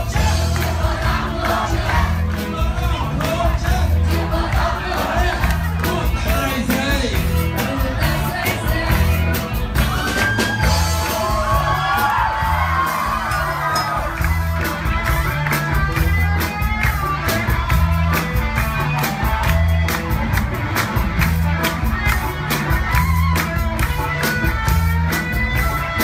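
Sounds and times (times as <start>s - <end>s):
voices singing and whooping: 0.0s - 14.4s
live band playing dance music: 0.0s - 26.0s.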